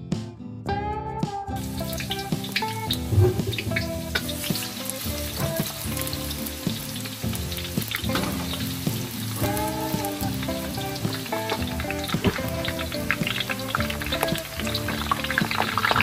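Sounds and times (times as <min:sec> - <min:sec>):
background music: 0:00.0 - 0:16.0
fish sizzling in a pan: 0:01.6 - 0:16.0.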